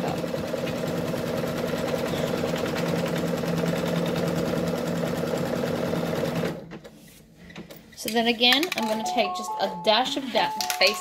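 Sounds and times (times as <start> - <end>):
embroidery machine stitching: 0.0 - 6.6.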